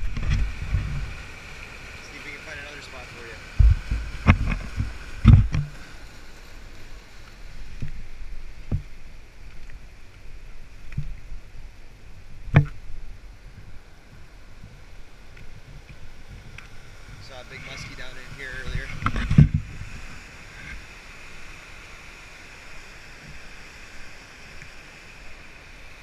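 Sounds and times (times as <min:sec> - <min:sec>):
fast water rushing: 0:00.0 - 0:26.0
camera knocks and thumps: 0:03.6 - 0:05.7, 0:19.0 - 0:19.7.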